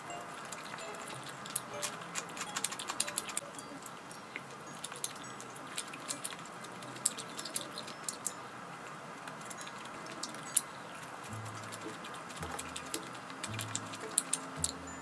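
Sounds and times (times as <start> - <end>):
chopsticks tapping dishes: 11.3 - 15.0.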